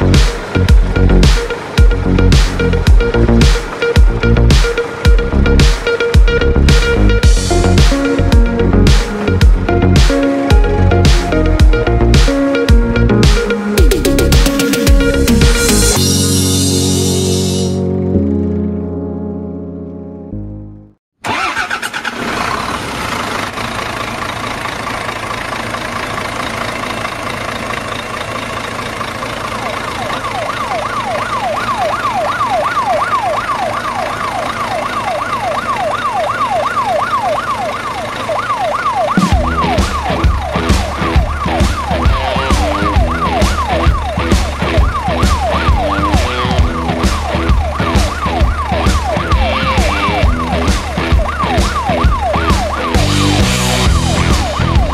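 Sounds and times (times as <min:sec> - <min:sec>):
background music with drum beat: 0:00.0 - 0:17.7, 0:39.2 - 0:54.9
siren yelp: 0:00.0 - 0:17.9, 0:29.6 - 0:54.9.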